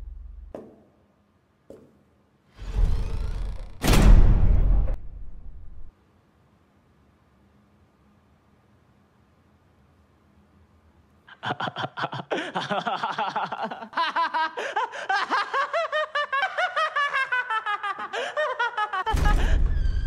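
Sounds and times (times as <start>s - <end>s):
young man laughing: 11.3s - 19.6s.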